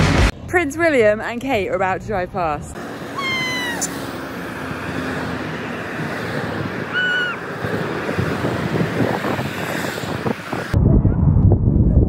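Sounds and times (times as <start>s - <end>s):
cars passing on road: 0.0s - 10.8s
wind on microphone: 6.3s - 12.0s.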